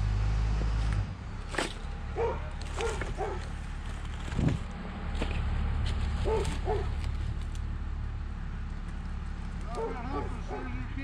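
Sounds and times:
dog barking: 2.2 - 3.5, 6.2 - 6.9, 9.7 - 10.8.

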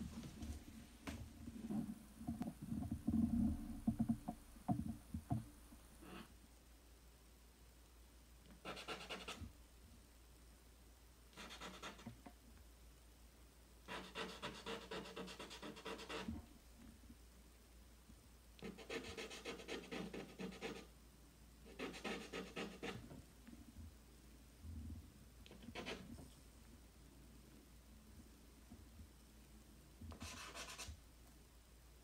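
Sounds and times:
charcoal scratching on paper: 8.6 - 9.4, 11.4 - 12.1, 13.9 - 16.3, 18.6 - 20.9, 21.7 - 23.0, 25.5 - 26.1, 30.1 - 31.0.

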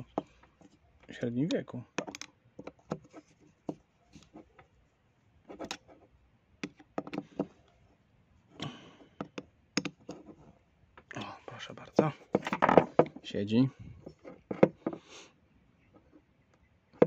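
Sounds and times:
screwdriver clicking and scraping on metal: 2.0 - 3.3, 5.5 - 5.9.

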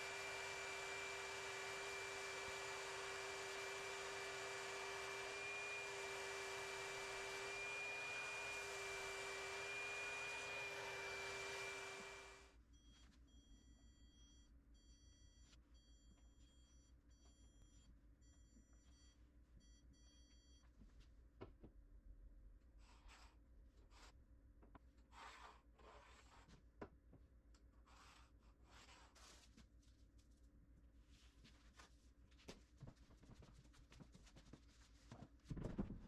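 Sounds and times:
spray turbine whine and hiss: 0.0 - 12.4
stud finder beeping: 0.0 - 14.5.

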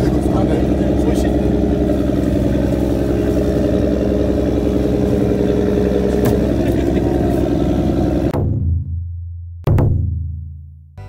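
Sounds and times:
boat engine humming: 0.0 - 8.4.

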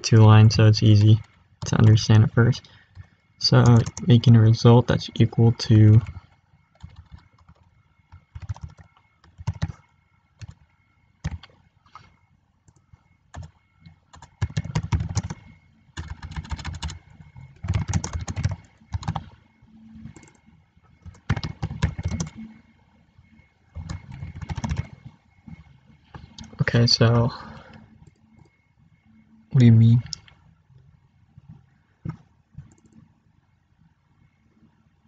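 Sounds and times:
typing on computer keyboard: 2.9 - 4.2, 5.9 - 10.6, 11.2 - 12.1, 12.7 - 19.4, 20.0 - 20.4, 21.0 - 22.5, 23.8 - 25.0.

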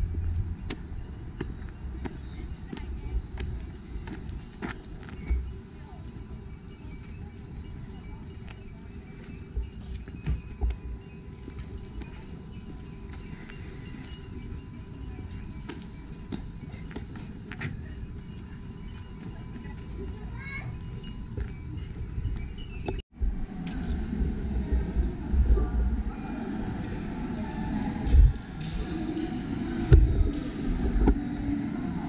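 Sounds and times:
dull low thumps: 0.0 - 4.6, 26.8 - 31.4
high-pitched insect chorus: 0.0 - 23.0, 24.3 - 32.0.

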